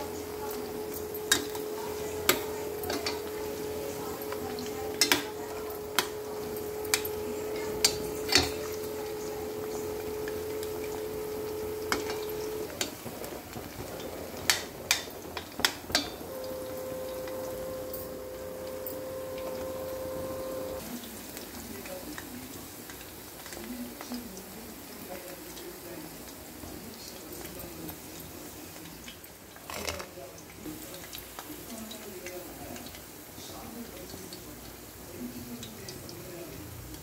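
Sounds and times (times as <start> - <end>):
steady hum: 0.0 - 14.9, 15.9 - 20.8
food deep-frying in hot oil: 0.0 - 37.0.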